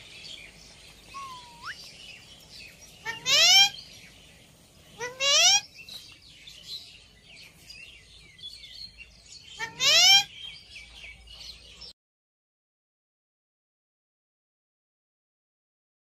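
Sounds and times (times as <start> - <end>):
parakeets calling: 0.0 - 7.2, 8.4 - 11.0
faint bird chirps: 0.0 - 12.0.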